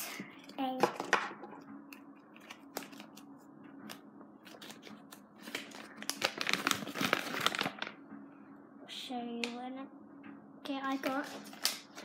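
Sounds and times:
packaging crinkling and tearing: 0:04.5 - 0:08.0, 0:10.9 - 0:12.0.

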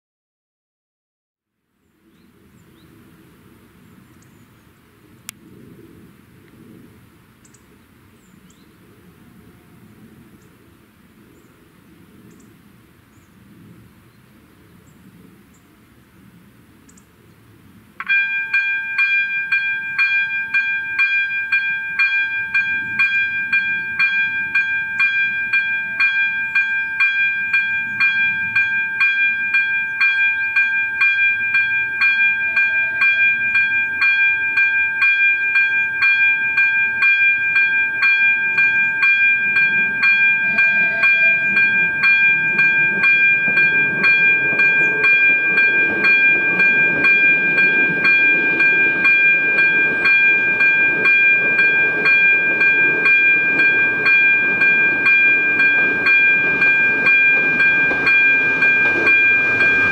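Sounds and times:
faint outdoor background: 0:01.4 - 0:59.9
level-crossing bell ringing: 0:18.0 - 0:59.9.

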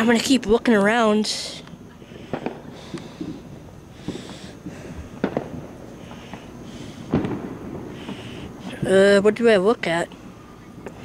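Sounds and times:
distant fireworks bangs: 0:02.0 - 0:08.9.

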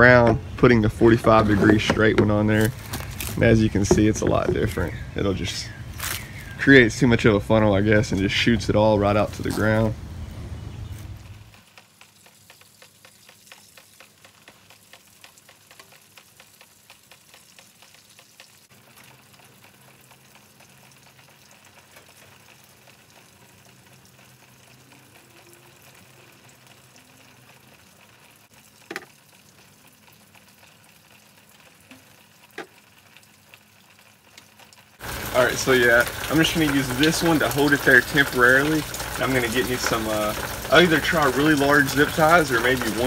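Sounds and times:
plastic pipes rustling: 0:00.0 - 0:05.0.

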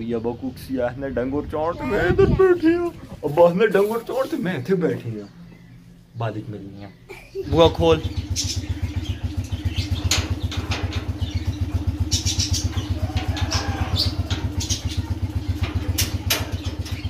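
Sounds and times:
motorcycle engine idling: 0:07.0 - 0:17.0.

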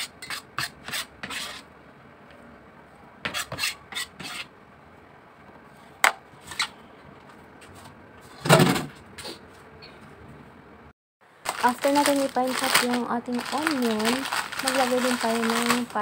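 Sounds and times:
knife scraping cutting board: 0:00.0 - 0:01.7, 0:03.3 - 0:04.5.

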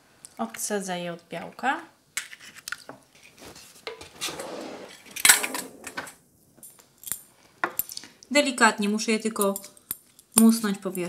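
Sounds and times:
scraping rustle: 0:02.3 - 0:06.2.

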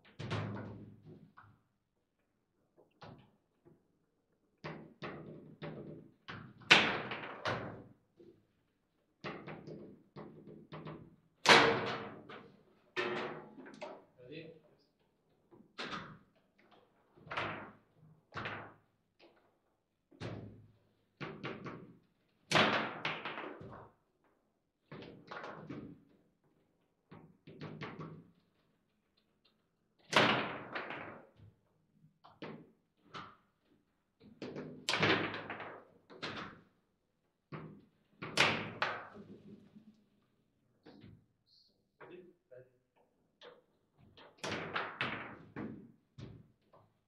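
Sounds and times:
foosball ball knocks and thunks: 0:00.1 - 0:01.2, 0:04.6 - 0:07.9, 0:09.2 - 0:14.1, 0:17.1 - 0:18.8, 0:20.2 - 0:23.9, 0:24.9 - 0:26.1, 0:27.1 - 0:28.3, 0:30.0 - 0:31.4, 0:32.3 - 0:33.4, 0:34.2 - 0:36.7, 0:37.6 - 0:39.6, 0:43.4 - 0:46.8.

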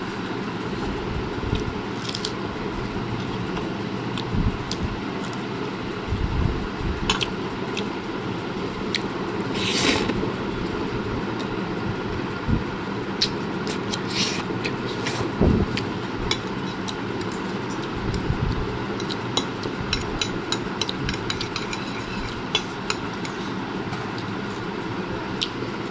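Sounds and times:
cutlery clinking and scraping plate: 0:21.1 - 0:22.7.

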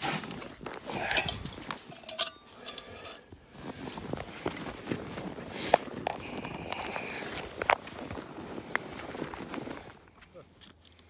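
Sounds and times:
metal tools clinking in a bag: 0:01.0 - 0:03.3
footsteps in snow: 0:03.3 - 0:10.1.

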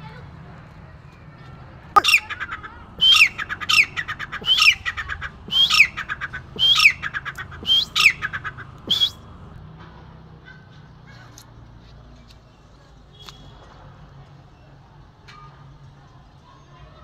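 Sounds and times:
francolin harsh territorial calls: 0:02.0 - 0:09.2.

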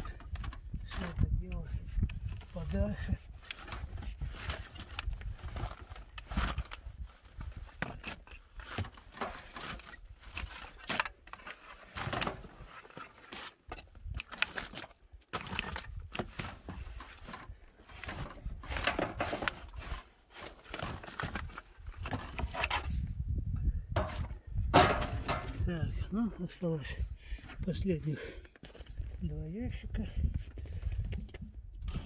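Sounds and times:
stick scraping and knocking on wood: 0:24.0 - 0:25.7.

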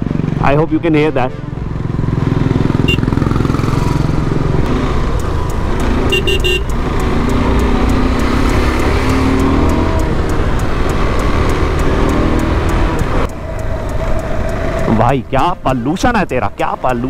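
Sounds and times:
motorcycle engine revving: 0:00.0 - 0:00.8, 0:01.4 - 0:17.0
vehicle horn toots: 0:02.8 - 0:03.2, 0:06.1 - 0:06.7.

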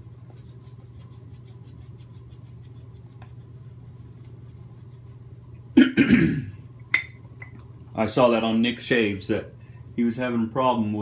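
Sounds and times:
shaving brush rubbing lather: 0:00.0 - 0:05.4
steady low hum: 0:00.0 - 0:11.0.

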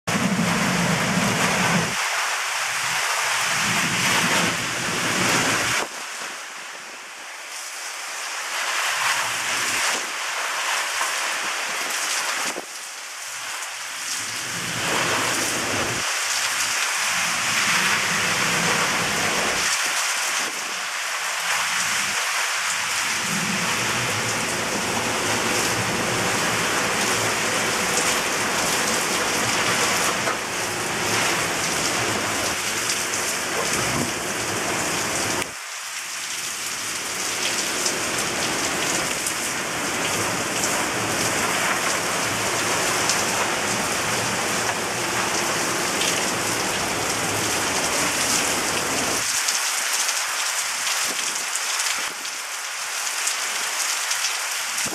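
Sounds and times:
heavy rain pouring: 0:00.0 - 0:54.9
low rumble: 0:22.9 - 0:32.5.

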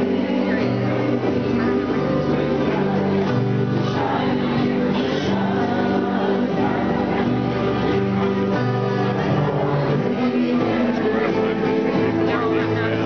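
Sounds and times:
woman singing: 0:00.0 - 0:08.0, 0:09.0 - 0:12.2
acoustic guitar: 0:00.0 - 0:13.0
man singing: 0:00.0 - 0:13.0.

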